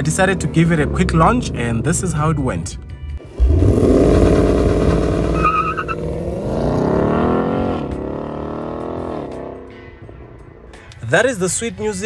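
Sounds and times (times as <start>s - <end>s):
car engine at full throttle: 3.2s - 10.5s.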